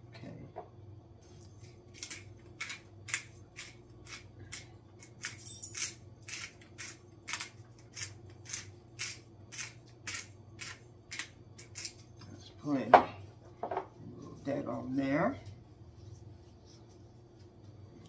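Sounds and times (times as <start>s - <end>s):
steady low hum: 0.0s - 18.0s
spice shaker shaking: 2.1s - 12.0s.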